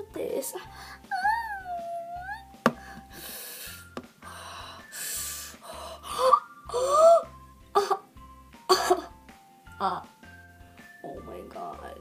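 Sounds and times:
girl crying out wordlessly: 1.1s - 2.5s, 6.1s - 8.1s
girl gasping: 2.7s - 8.0s.

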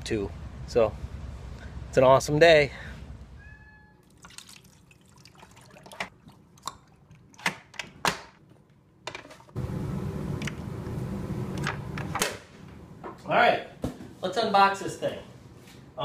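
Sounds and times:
water pouring into reservoir: 4.0s - 7.3s
steady low hum: 9.6s - 14.2s.

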